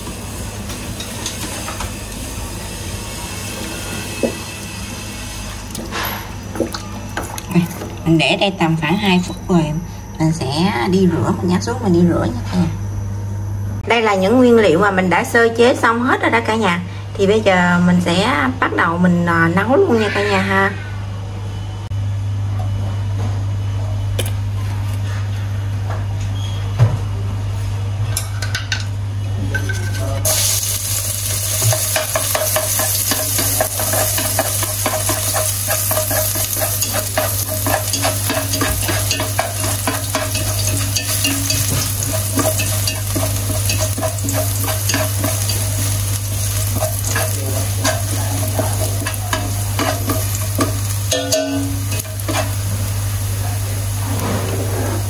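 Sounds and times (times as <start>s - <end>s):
steady low hum: 0.0s - 19.9s, 27.0s - 55.0s
garlic sizzling in oil: 30.3s - 54.0s
chopsticks stirring: 31.2s - 52.7s.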